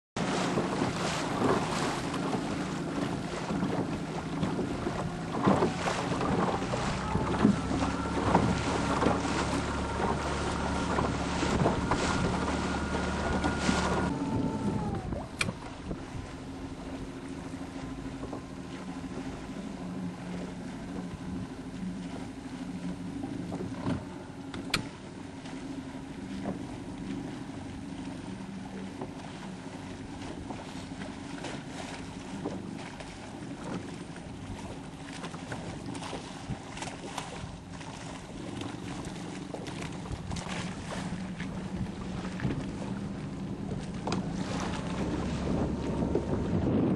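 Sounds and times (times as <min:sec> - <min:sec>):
water noise: 0:00.2 - 0:46.9
wind: 0:00.2 - 0:46.9.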